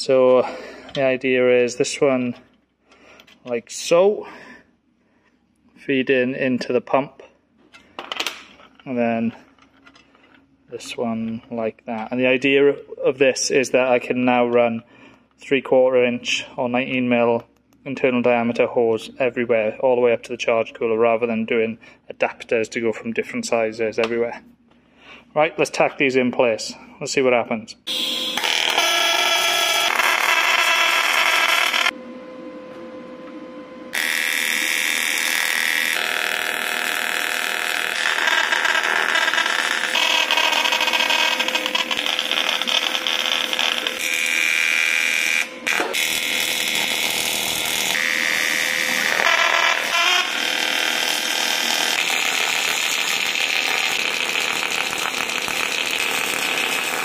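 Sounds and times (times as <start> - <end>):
welding arc buzzing: 27.9 - 32.0, 33.9 - 57.0.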